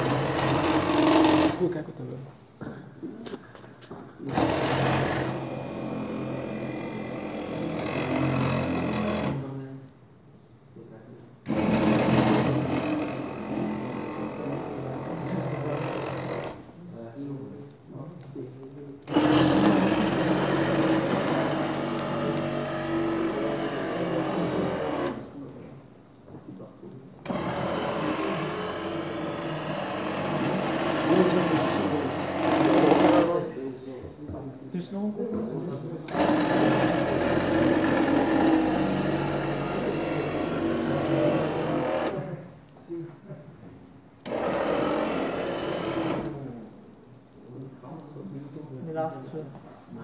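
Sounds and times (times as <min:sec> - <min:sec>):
electric motor whirring: 0:00.0 - 0:01.6, 0:04.3 - 0:09.5, 0:11.5 - 0:16.7, 0:19.1 - 0:25.3, 0:27.2 - 0:33.5, 0:36.1 - 0:42.3, 0:44.2 - 0:46.4
electric drive whining and rattling: 0:00.0 - 0:01.7, 0:04.2 - 0:09.6, 0:11.4 - 0:16.8, 0:19.0 - 0:25.5, 0:27.2 - 0:33.6, 0:36.0 - 0:42.4, 0:44.2 - 0:46.6.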